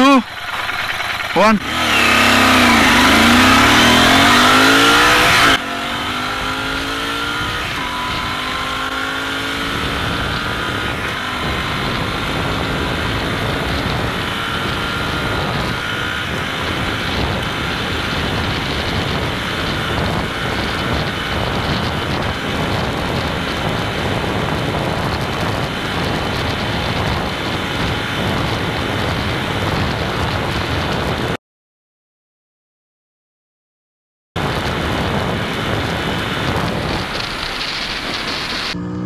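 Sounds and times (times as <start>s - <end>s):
motorcycle engine at full throttle: 0.0s - 31.4s, 34.4s - 39.0s
wind rush on microphone: 0.0s - 31.4s, 34.4s - 38.8s.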